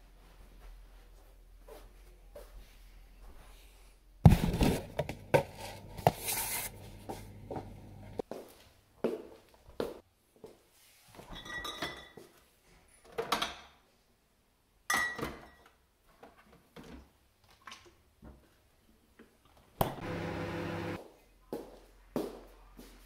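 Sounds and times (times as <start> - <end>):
microwave oven humming: 6.7 - 8.2, 20.0 - 21.0.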